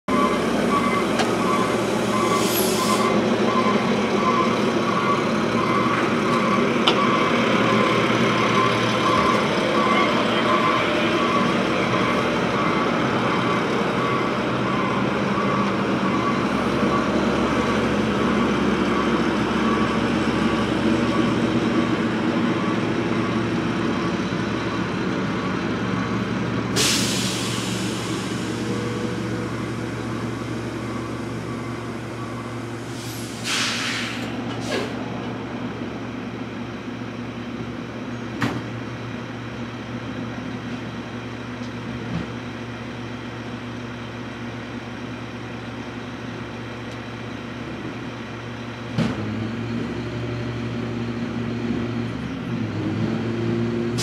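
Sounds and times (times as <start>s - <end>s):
reversing alarm beeping: 0.1s - 26.3s, 26.9s - 33.4s
truck engine running: 0.1s - 33.1s
air brake hissing: 1.6s - 3.2s, 26.8s - 29.4s, 32.8s - 35.0s.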